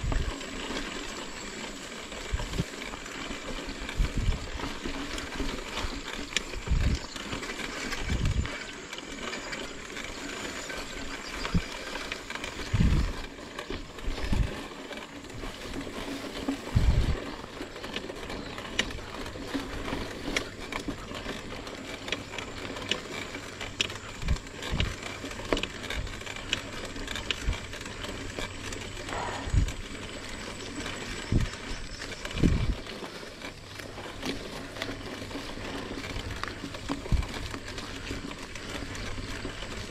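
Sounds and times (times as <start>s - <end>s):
bike thumping and rattling over bumps: 0.0s - 39.9s
mountain bike tyres rolling on dirt: 0.0s - 39.9s.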